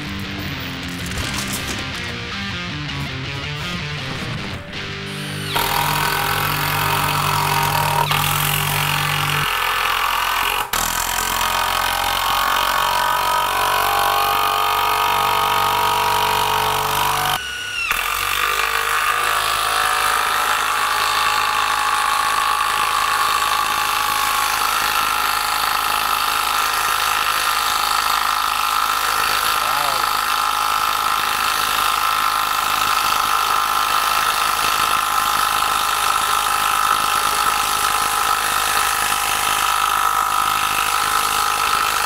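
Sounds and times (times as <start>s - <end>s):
impact driver hammering screws: 5.2s - 12.4s, 16.4s - 27.5s.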